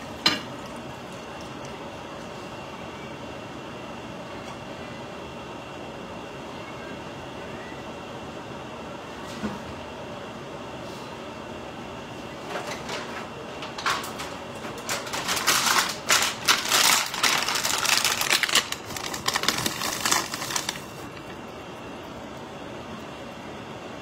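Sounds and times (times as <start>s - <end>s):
plastic bag crinkling: 14.8s - 21.4s.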